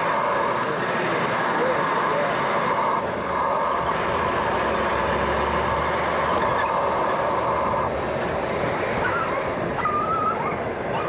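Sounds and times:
road noise: 0.0 - 11.0
vehicle engine rumble: 0.0 - 11.0.

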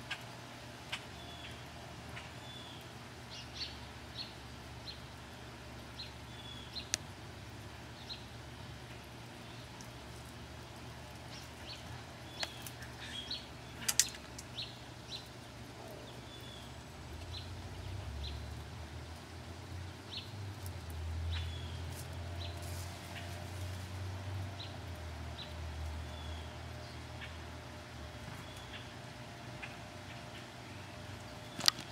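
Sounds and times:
sharp clicks: 13.8 - 14.5
small bird chirping: 28.1 - 29.0.

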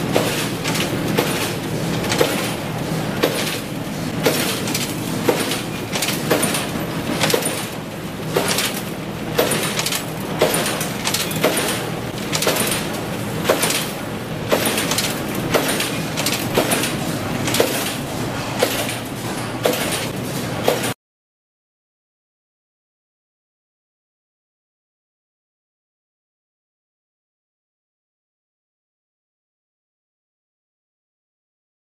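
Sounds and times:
machine mechanical din: 0.0 - 21.0
sharp machine clack: 0.0 - 21.0.

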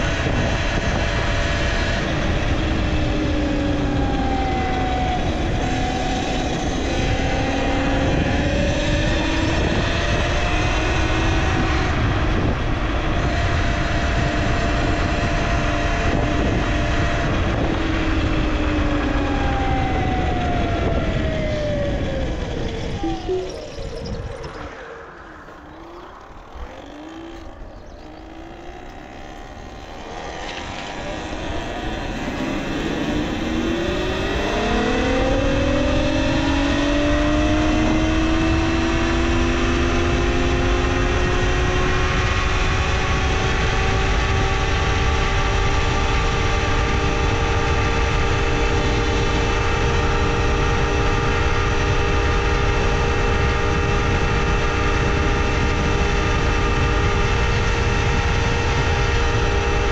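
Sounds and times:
electric motor whine: 19.4 - 39.8.

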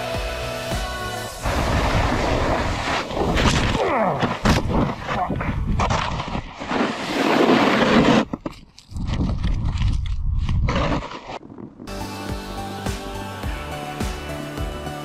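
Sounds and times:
snowboard scraping over snow: 1.2 - 8.4.

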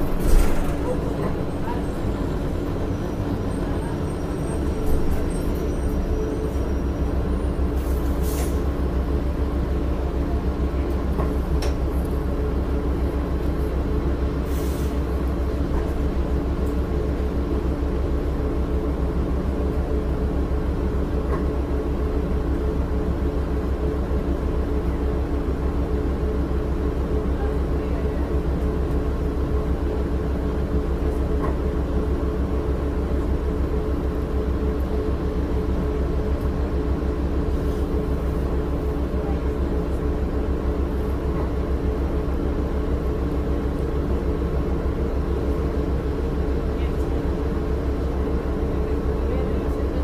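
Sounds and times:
bus diesel engine drone: 0.0 - 50.0.

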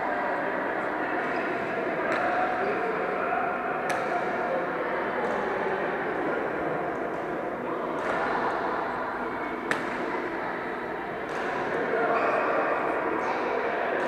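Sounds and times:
distant voices in a hall: 0.0 - 14.0
racket hitting shuttlecock: 8.0 - 8.6, 9.6 - 11.7.

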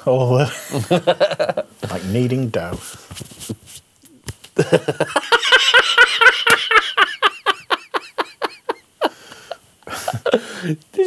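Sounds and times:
person laughing heartily: 0.6 - 1.7, 4.6 - 10.8.

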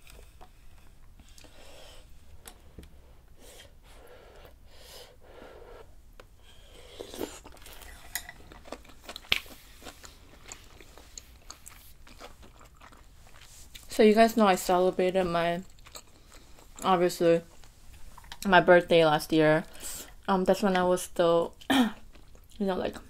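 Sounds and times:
slurping and chewing: 6.5 - 13.9, 15.6 - 18.5, 22.0 - 22.6.

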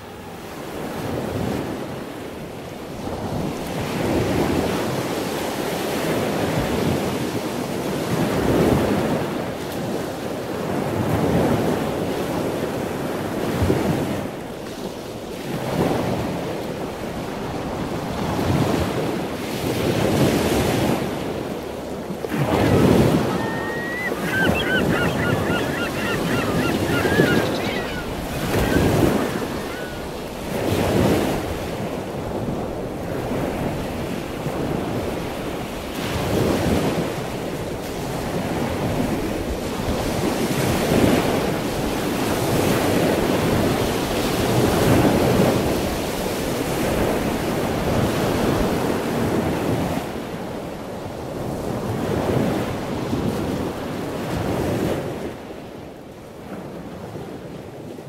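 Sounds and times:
wind buffeting microphone: 15.5 - 50.0
ocean surf breaking: 17.4 - 33.6.

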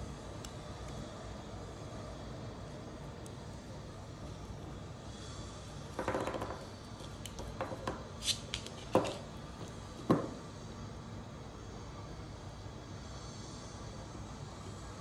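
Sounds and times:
sharp knocks on tabletop: 7.5 - 8.0, 8.9 - 9.2, 10.0 - 10.4.

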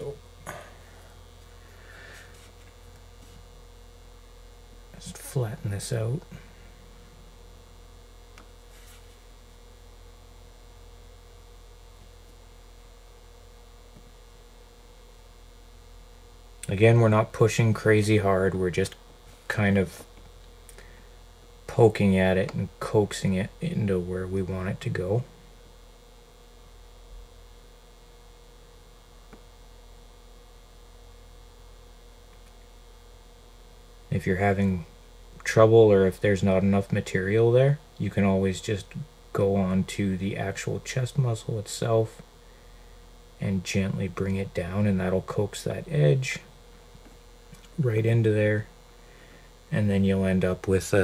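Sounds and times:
electrical mains hum: 0.0 - 51.0.

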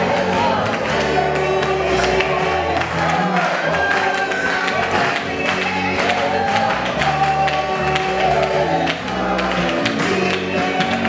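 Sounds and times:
congregation singing: 0.0 - 11.0
music: 0.0 - 11.0
rhythmic hand clapping: 0.0 - 11.0.

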